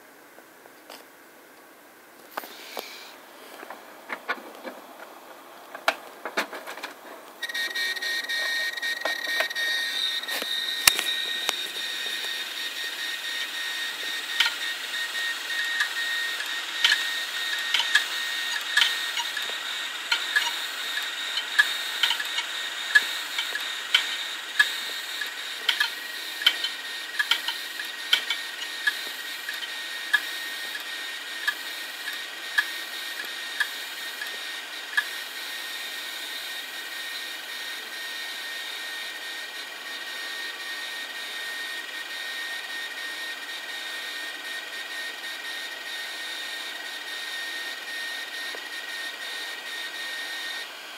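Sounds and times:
hard drives whining: 0.0 - 50.9
hard drive heads clicking: 8.2 - 35.4.

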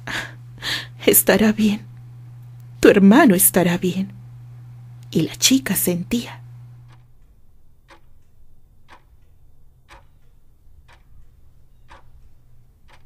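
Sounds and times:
clock ticking: 6.8 - 7.1, 7.8 - 13.0.

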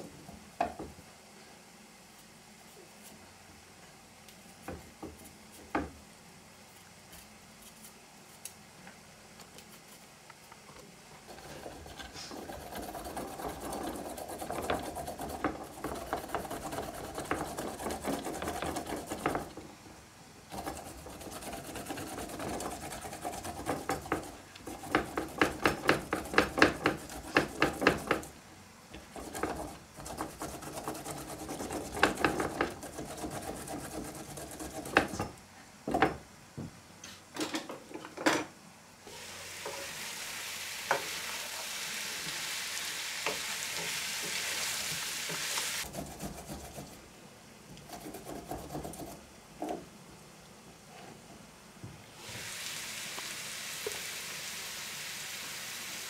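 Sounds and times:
kitchen tool working food: 39.1 - 46.8.

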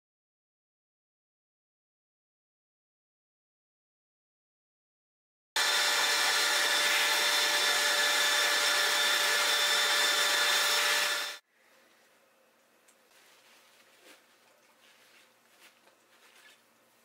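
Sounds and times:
angle grinder with wire wheel: 5.6 - 11.4.

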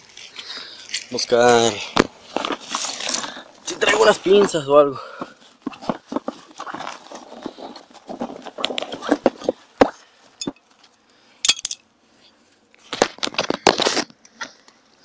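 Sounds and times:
scraping and rustling on stones: 0.0 - 11.0
sharp clicks and clinks: 11.4 - 11.8.

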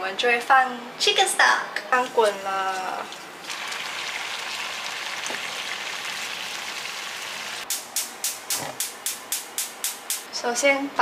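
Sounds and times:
water boiling in saucepan: 2.0 - 7.7.

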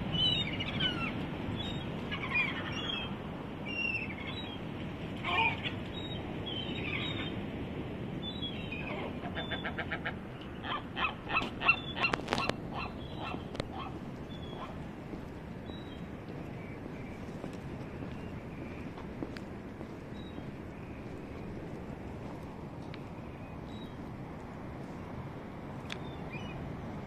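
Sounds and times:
gulls calling: 0.0 - 7.4, 8.2 - 14.8.

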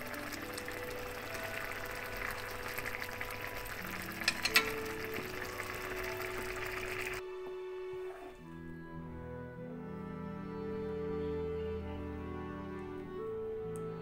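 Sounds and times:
food sizzling in a pan: 0.0 - 7.2
background music: 0.0 - 14.0.

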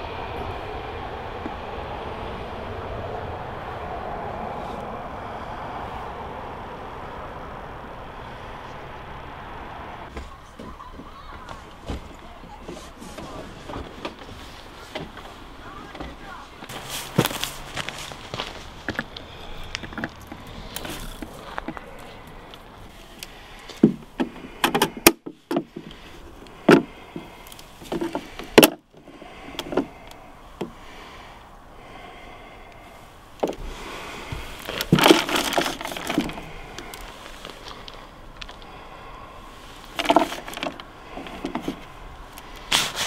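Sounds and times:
plastic knocks clicks and rattles: 19.8 - 20.5, 23.8 - 26.0, 26.7 - 28.8, 34.7 - 36.5, 39.9 - 41.9.

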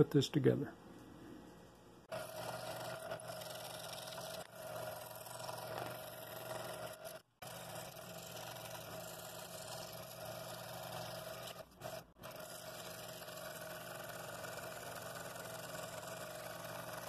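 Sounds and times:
scroll saw cutting wood: 2.1 - 17.0.

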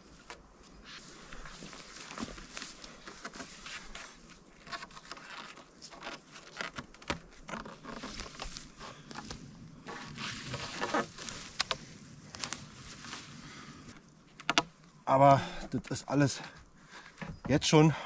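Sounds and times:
rope rustling and scraping on logs: 0.0 - 15.0
small knocks: 14.4 - 14.8.

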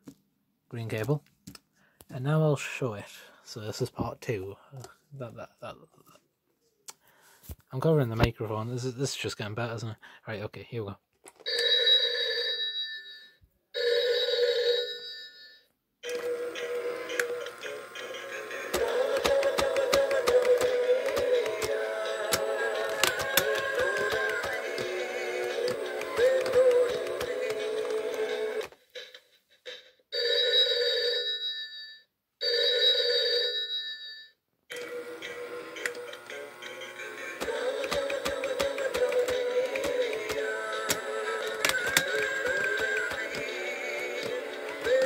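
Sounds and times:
novelty telephone ringing: 11.4 - 28.6, 30.2 - 45.0
toy song playing: 16.0 - 28.7, 34.7 - 45.0
sharp clicks: 18.7 - 28.7, 37.4 - 43.5.

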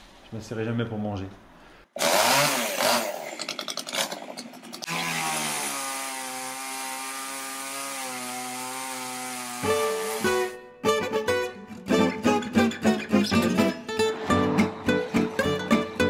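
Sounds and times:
electric chainsaw cutting branches: 2.0 - 10.6.

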